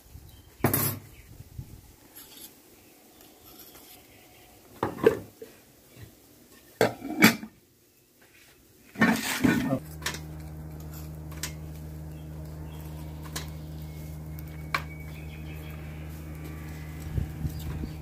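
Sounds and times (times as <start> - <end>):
steady low hum: 9.7 - 18.0.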